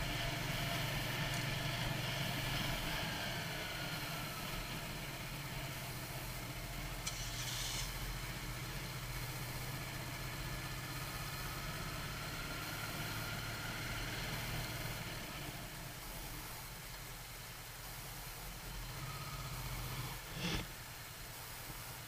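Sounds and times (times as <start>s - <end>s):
motorcycle engine running: 0.0s - 21.3s
short hiss: 7.0s - 8.2s, 19.9s - 20.8s.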